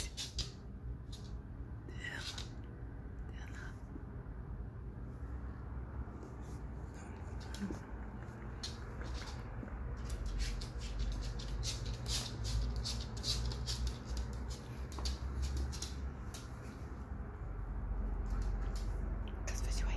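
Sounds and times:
dog sniffing: 0:06.4 - 0:16.7.

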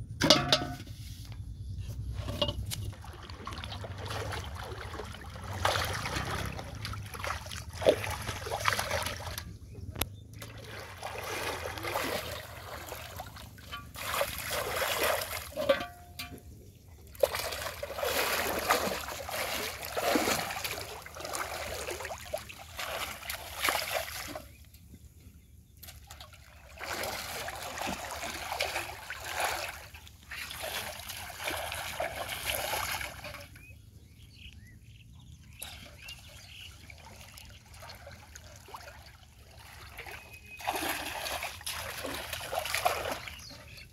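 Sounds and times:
water splashing and sloshing: 0:00.0 - 0:43.9
metal pot pushed through water: 0:00.2 - 0:01.0, 0:02.0 - 0:09.5, 0:10.4 - 0:16.6, 0:17.2 - 0:22.2, 0:26.8 - 0:33.7, 0:35.5 - 0:36.7.

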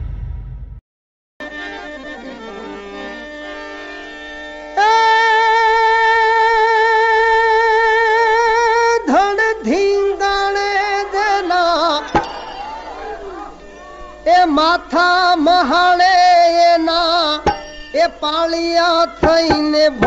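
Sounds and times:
person singing devotional song: 0:04.8 - 0:12.6, 0:14.2 - 0:20.0.

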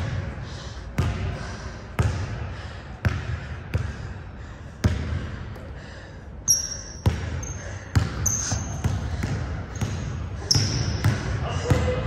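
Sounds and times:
basketball bouncing on court: 0:01.0 - 0:01.4, 0:02.0 - 0:02.4, 0:03.0 - 0:04.2, 0:04.8 - 0:05.6, 0:06.5 - 0:12.0
sneakers squeaking on floor: 0:06.5 - 0:12.0.

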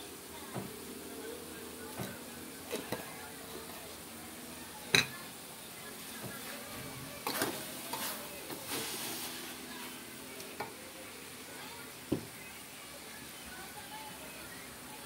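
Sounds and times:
spatula scraping and clattering: 0:07.2 - 0:08.8.

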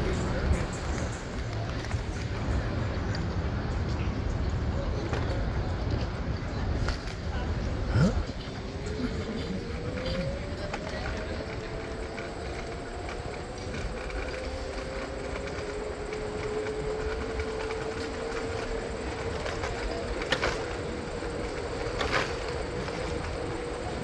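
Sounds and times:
bicycle tyres rolling on asphalt: 0:00.0 - 0:24.0.

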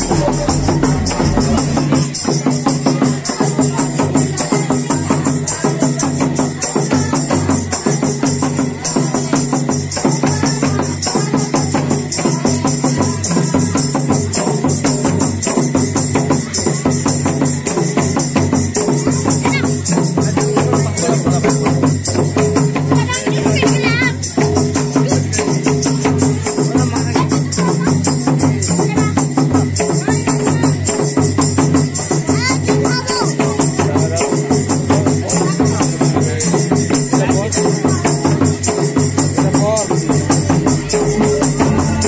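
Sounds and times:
bright jingling: 0:00.0 - 0:42.0
hand drums in dance rhythm: 0:00.0 - 0:42.0.

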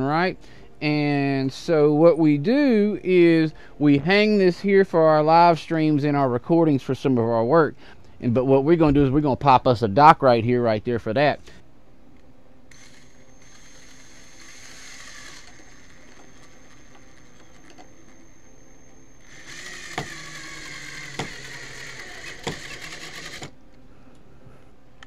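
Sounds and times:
drill clutch clicks: 0:12.7 - 0:18.4, 0:19.2 - 0:23.6
cordless drill motor whining: 0:12.7 - 0:23.6.

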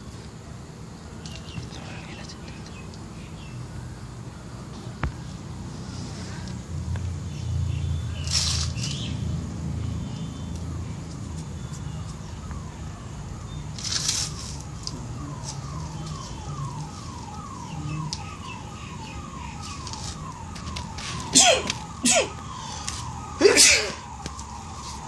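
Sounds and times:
electronic alarm falling tone: 0:14.3 - 0:25.0.

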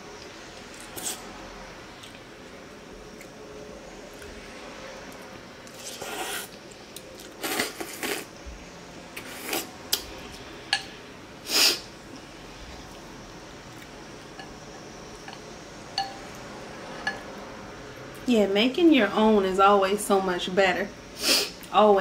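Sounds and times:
slurping noodles and broth: 0:05.7 - 0:06.6, 0:07.4 - 0:08.3, 0:09.2 - 0:09.7
spoon and chopsticks clicking on bowl: 0:15.2 - 0:16.2.

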